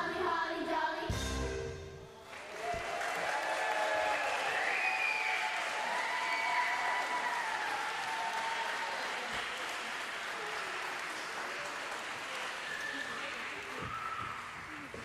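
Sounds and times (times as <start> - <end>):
audience applauding: 2.2 - 15.0.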